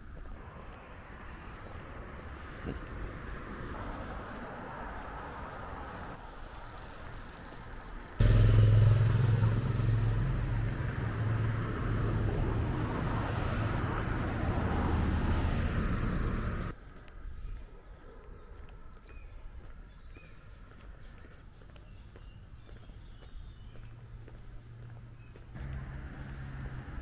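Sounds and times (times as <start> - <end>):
road traffic: 0.0 - 17.4, 19.5 - 27.0
low engine hum: 6.6 - 16.8, 22.2 - 27.0.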